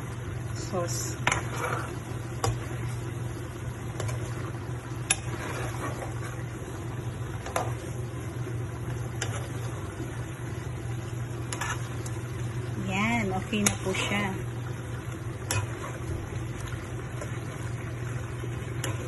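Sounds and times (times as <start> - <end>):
steady low hum: 0.0 - 19.0
metal ladle stirring in frying pan: 1.0 - 3.0, 3.9 - 6.6, 7.3 - 8.1, 8.8 - 10.0, 11.1 - 12.6, 13.2 - 19.0.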